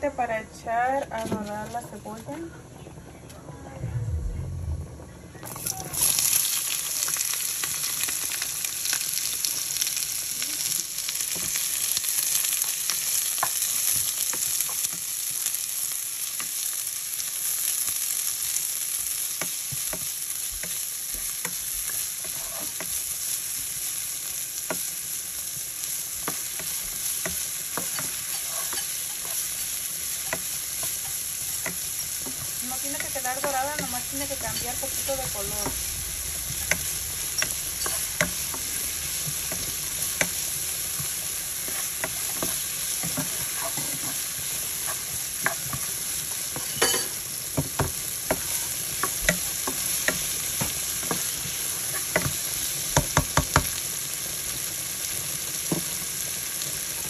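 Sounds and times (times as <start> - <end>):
onion sizzling in hot oil: 5.4 - 57.0
spatula scraping a pan: 19.4 - 23.1, 26.1 - 35.9, 36.6 - 47.2, 47.8 - 52.5.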